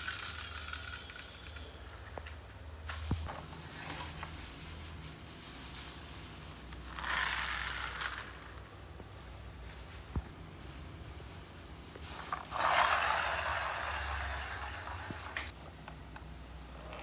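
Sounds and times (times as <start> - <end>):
plastic wheels rolling on tiles: 0.0 - 2.3, 5.9 - 9.4, 12.0 - 15.6.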